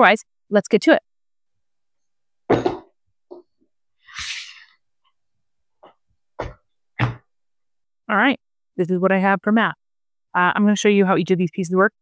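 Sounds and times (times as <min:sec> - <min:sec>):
box thumping on wooden table: 0:02.5 - 0:02.9, 0:06.4 - 0:07.3.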